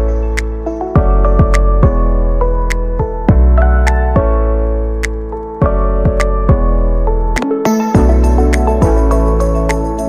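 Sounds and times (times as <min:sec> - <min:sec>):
keyboard notes: 0:00.0 - 0:10.0.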